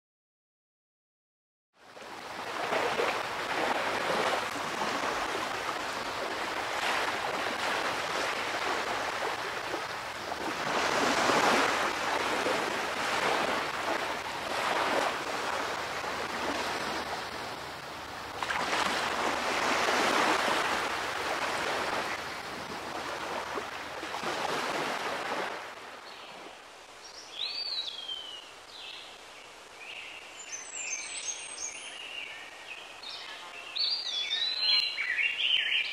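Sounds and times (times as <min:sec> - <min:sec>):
ocean surf washing: 0:02.0 - 0:26.5.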